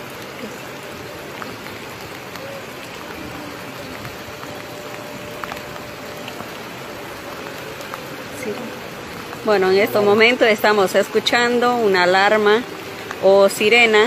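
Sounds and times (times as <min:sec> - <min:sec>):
river rushing: 0:00.0 - 0:14.0
faint siren tone: 0:02.3 - 0:09.0.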